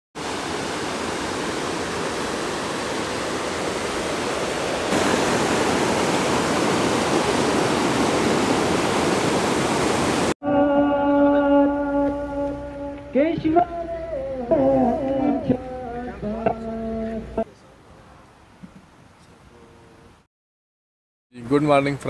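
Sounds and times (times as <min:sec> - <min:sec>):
river rushing over boulders: 0:00.2 - 0:10.4
music with long held notes: 0:10.4 - 0:17.4.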